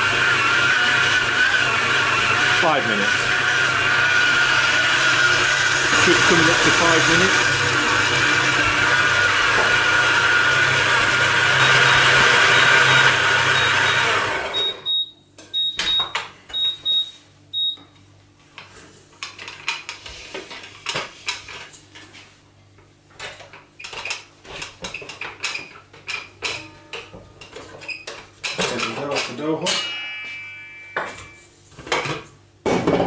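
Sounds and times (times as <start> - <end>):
stand mixer motor running: 0.0 - 14.6.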